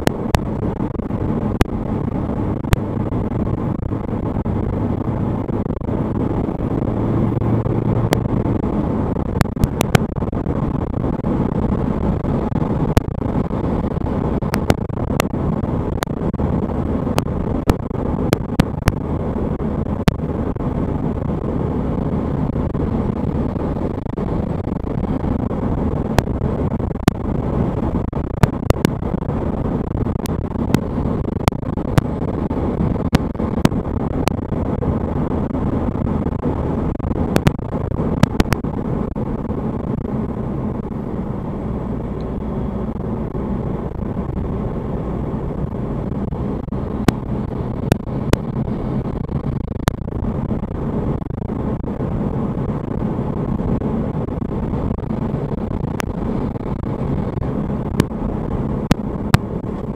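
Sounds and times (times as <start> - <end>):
car engine and tyre rumble: 0.0 - 59.9
sharp clicks: 45.6 - 51.6.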